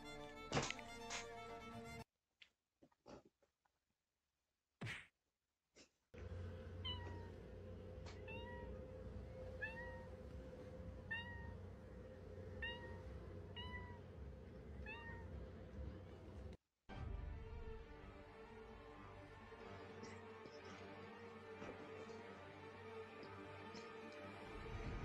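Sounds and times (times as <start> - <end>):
low rumble: 6.2 - 19.8
cat meowing: 6.8 - 15.7.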